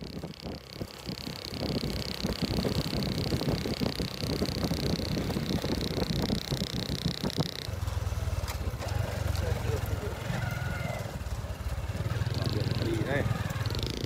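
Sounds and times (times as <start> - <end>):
high-pitched buzz: 0.0 - 8.6
low engine hum: 0.0 - 14.0
road and wind rumble: 0.0 - 14.0
small motorbike engines: 0.0 - 14.0.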